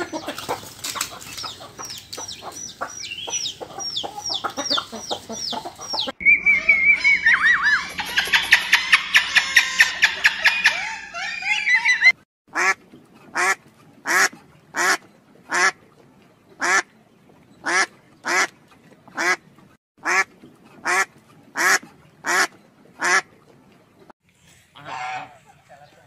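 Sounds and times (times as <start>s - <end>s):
duck quacking: 12.5s - 15.8s, 17.6s - 18.5s, 19.2s - 19.4s, 20.0s - 23.3s, 24.8s - 26.0s.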